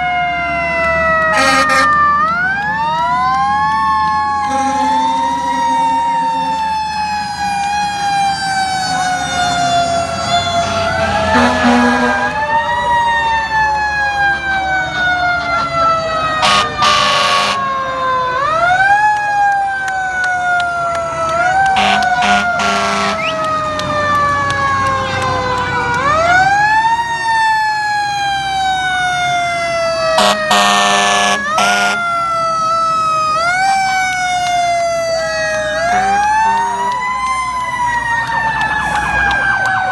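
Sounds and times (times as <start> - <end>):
fire engine sirens wailing: 0.0 - 39.9
loud horn blasts: 1.3 - 2.0, 4.4 - 6.0, 10.7 - 12.4, 16.4 - 17.6, 21.7 - 23.4, 30.2 - 32.0, 35.8 - 37.0.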